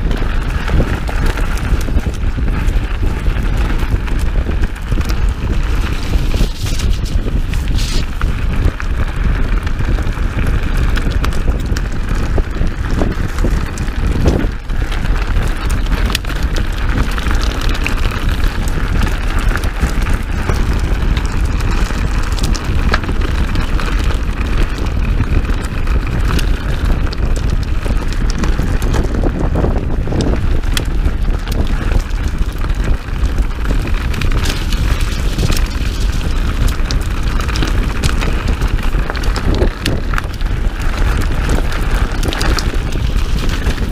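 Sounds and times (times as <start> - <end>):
bike and gravel clicks and rattles: 0.0 - 43.9
bike tyres rolling on dirt: 0.0 - 43.9
wind buffeting microphone: 0.0 - 43.9.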